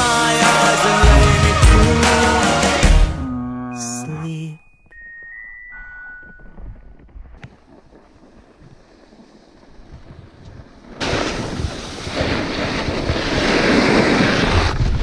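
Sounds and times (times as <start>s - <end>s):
snowboard scraping over snow: 7.7s - 15.0s.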